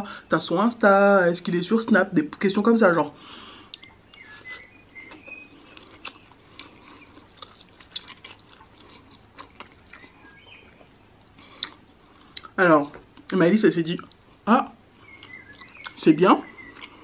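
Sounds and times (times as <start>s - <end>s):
soft mouth smacking clicks: 3.7s - 10.1s, 10.8s - 12.6s
chewing: 3.7s - 13.4s, 15.0s - 17.0s.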